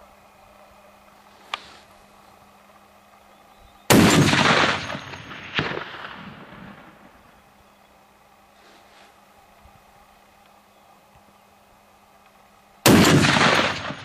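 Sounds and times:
rifle shot blast: 3.9s - 7.0s, 12.8s - 14.0s
sharp crack: 3.9s - 7.1s, 12.8s - 14.0s.

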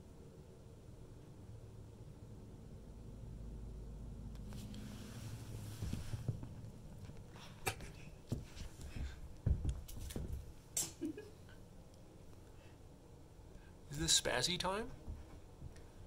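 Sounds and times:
dog scampering on carpet: 8.3s - 10.6s.

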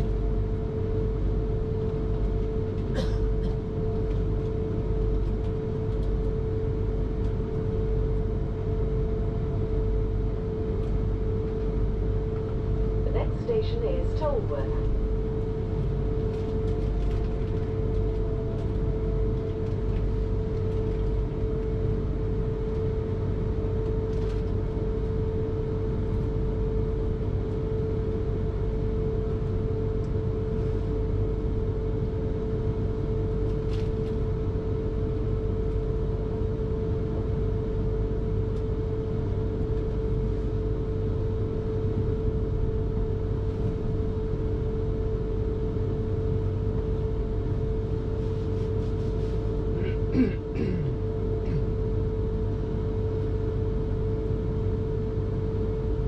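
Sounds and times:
electric drive whine: 0.0s - 2.9s.

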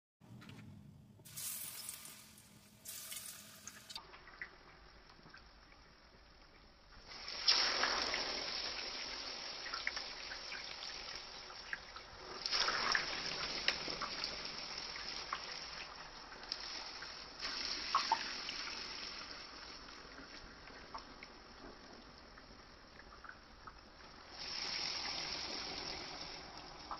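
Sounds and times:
hot oil sizzling in a skillet: 1.2s - 4.6s, 7.0s - 26.9s.

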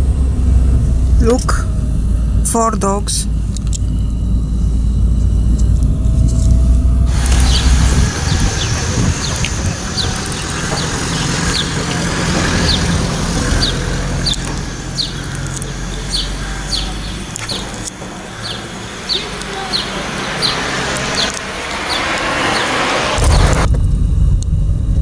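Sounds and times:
car running heard from inside: 0.0s - 25.0s
bird chirping: 7.1s - 23.5s.

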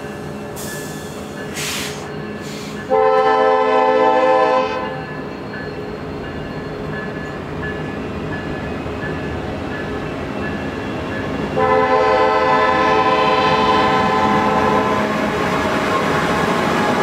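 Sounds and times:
rumble of train cars rolling: 0.0s - 17.0s
train horn chord: 2.9s - 5.0s, 11.6s - 15.0s.

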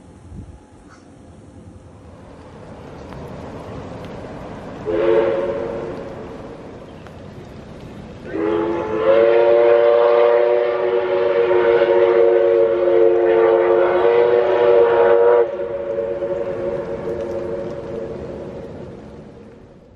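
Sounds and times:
steam whistle chord: 4.8s - 6.0s, 8.3s - 18.3s.

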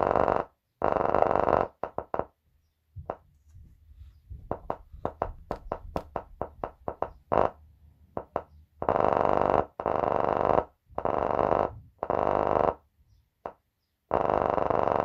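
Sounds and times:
subwoofer pops and buzzy blasts: 4.3s - 7.6s.

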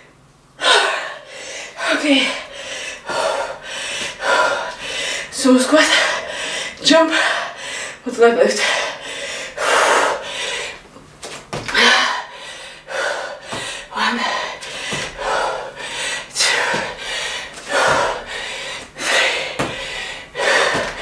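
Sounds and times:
woman breathing hard: 0.6s - 10.9s, 11.7s - 21.0s
bare feet thudding on mat: 11.2s - 11.9s, 13.4s - 13.9s, 14.6s - 15.4s, 16.4s - 18.8s, 19.5s - 21.0s.

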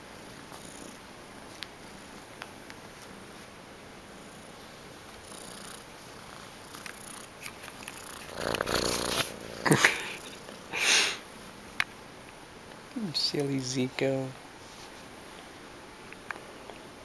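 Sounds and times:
kitten purring: 0.0s - 11.8s
kitten breathy bursts: 8.4s - 11.3s.

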